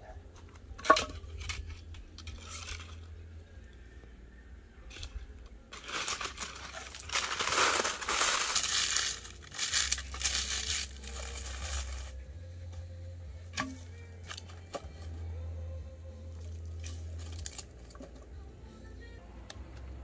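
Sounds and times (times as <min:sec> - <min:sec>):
dry leaves crackling: 0:04.8 - 0:12.2, 0:16.4 - 0:18.0.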